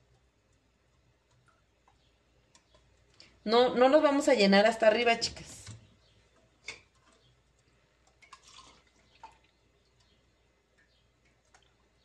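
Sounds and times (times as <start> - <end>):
faint liquid drips: 5.6 - 12.0.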